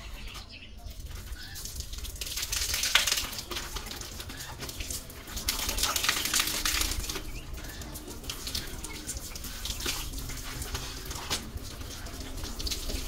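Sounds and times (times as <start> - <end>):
water splashing: 1.0 - 13.0.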